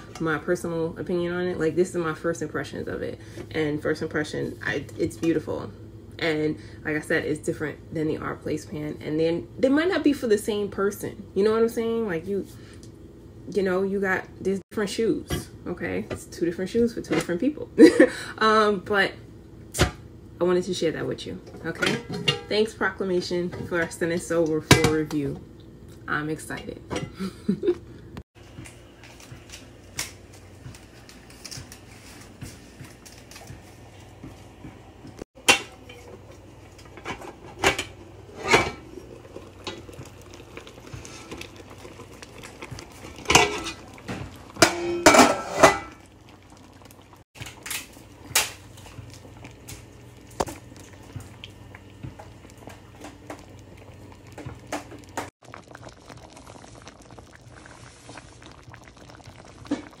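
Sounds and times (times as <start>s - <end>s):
metal clanking on steel pan: 21.7s - 22.5s, 35.4s - 36.1s, 43.2s - 43.8s, 44.6s - 46.0s.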